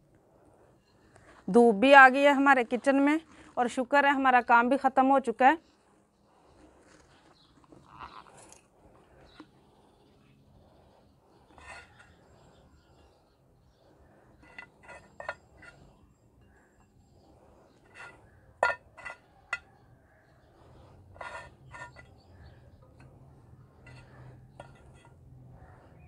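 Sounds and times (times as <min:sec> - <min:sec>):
rusks clinking on ceramic plate: 0:17.9 - 0:19.7.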